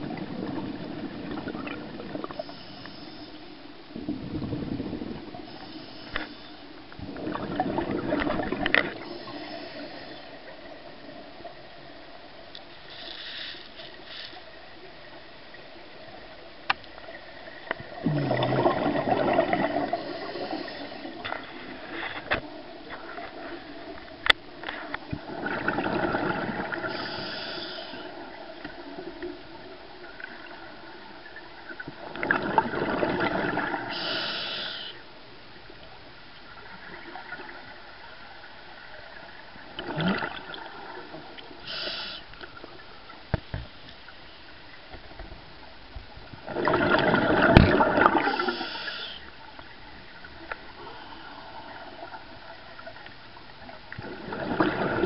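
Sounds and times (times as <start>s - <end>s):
exhaled bubbles underwater: 0.0s - 2.6s, 6.9s - 12.2s, 14.8s - 34.6s, 36.5s - 42.0s, 46.3s - 55.0s.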